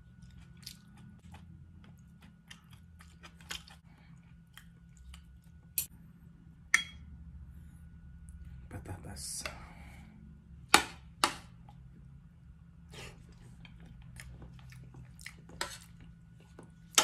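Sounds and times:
chewing and wet mouth sounds: 0.0 - 5.9, 13.1 - 17.0.

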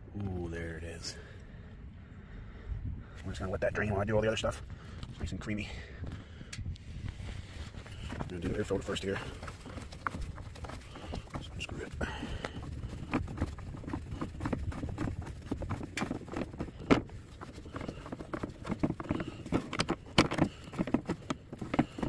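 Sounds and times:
low steady rumble: 0.0 - 22.0
plastic cover clicks and knocks: 17.8 - 22.0.

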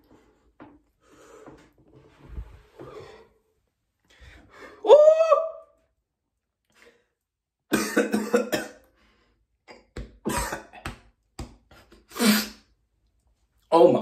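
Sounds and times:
man coughing hard: 7.7 - 8.8, 10.2 - 10.8.

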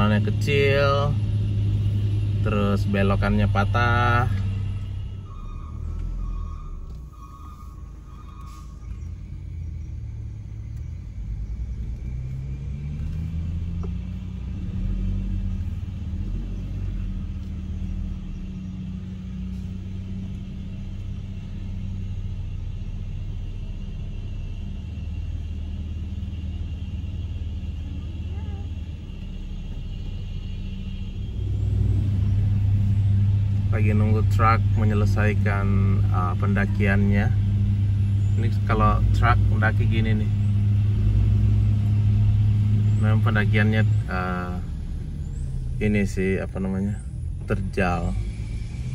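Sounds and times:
car engine under load: 0.0 - 48.9
road noise inside car: 0.0 - 48.9.

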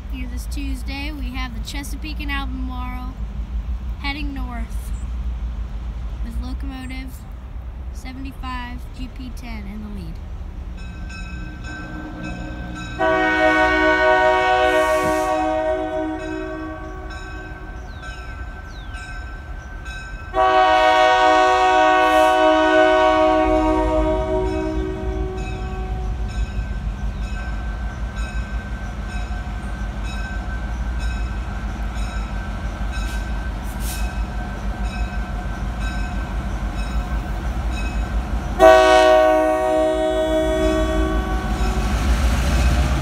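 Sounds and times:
low rumble of train: 0.0 - 43.0
locomotive horn blast: 11.5 - 17.7, 20.3 - 26.2, 38.6 - 41.9.

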